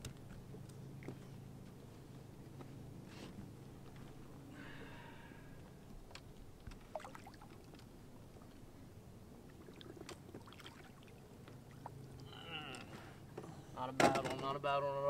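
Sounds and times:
faint water splashing: 4.8 - 13.3.

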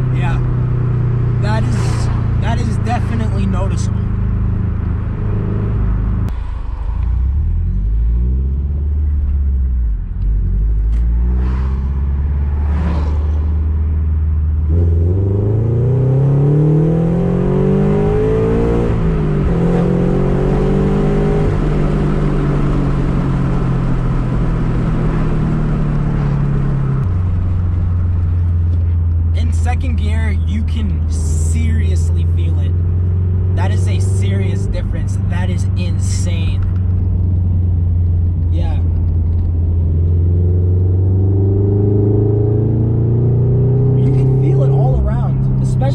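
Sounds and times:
car engine revving: 0.0 - 45.9.

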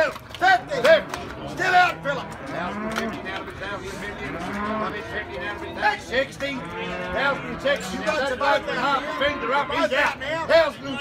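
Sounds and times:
cattle mooing: 0.6 - 10.2.

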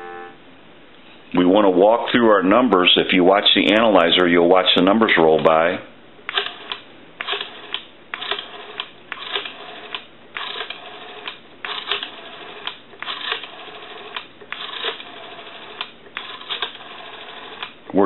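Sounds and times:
rotary telephone dial clicking: 6.3 - 17.8.

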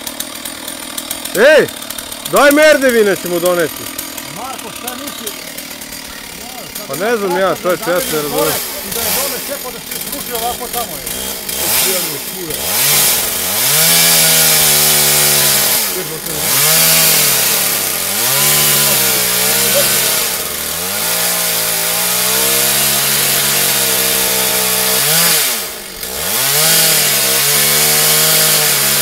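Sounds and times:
chainsaw cutting branch: 0.0 - 29.0.

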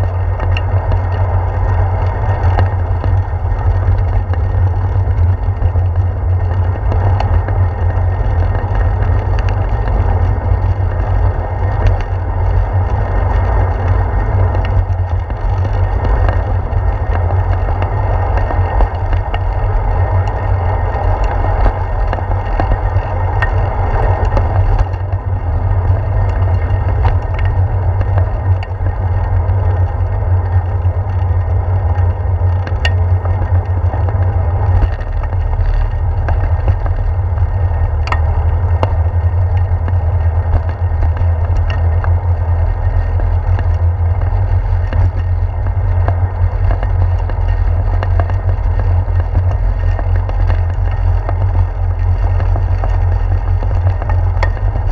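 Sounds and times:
bicycle tyres on pavement: 0.0 - 54.9
wind and road rumble: 0.0 - 54.9.

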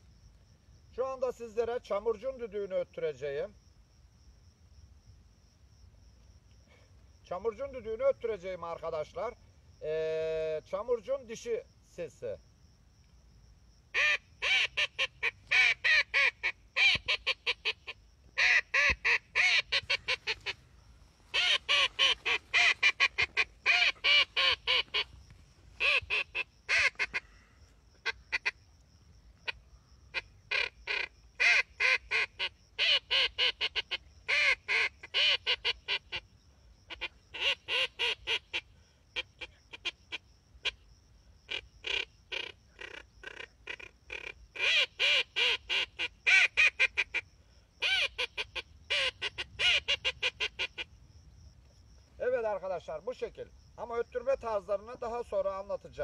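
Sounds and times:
duck call quacking: 14.0 - 20.6, 21.3 - 25.1, 25.8 - 27.3, 28.0 - 28.6, 30.1 - 36.2, 36.9 - 38.6, 41.5 - 47.2.

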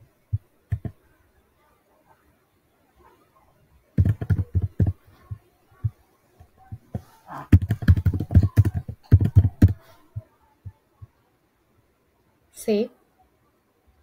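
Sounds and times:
computer keyboard typing: 0.7 - 1.0, 4.0 - 5.0, 7.0 - 9.9.

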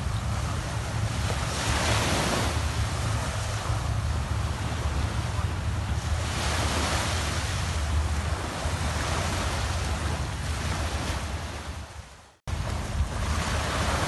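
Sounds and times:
surf washing onto beach: 0.0 - 11.9, 12.5 - 14.0
wind buffeting microphone: 0.0 - 14.0.

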